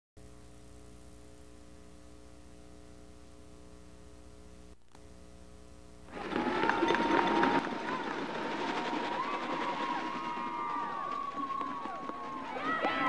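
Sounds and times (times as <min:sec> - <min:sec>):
electrical mains hum: 0:00.2 - 0:13.0
sports field sound: 0:05.8 - 0:13.0.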